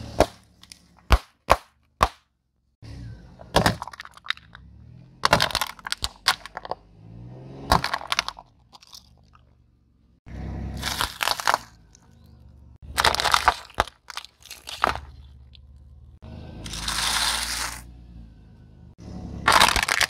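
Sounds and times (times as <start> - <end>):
balloons popping: 1.0 - 2.3
car engine running low: 2.7 - 20.0
plastic cups cracking: 3.5 - 4.6, 5.2 - 6.8, 7.7 - 9.5, 10.8 - 12.1, 12.9 - 15.6, 19.5 - 20.0.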